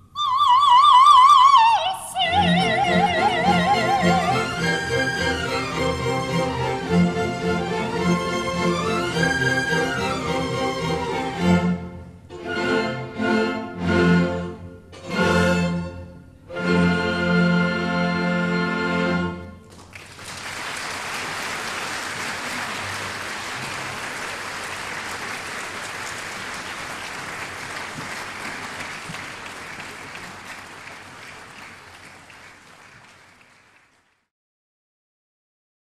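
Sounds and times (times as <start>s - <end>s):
audience applauding: 19.7s - 34.3s.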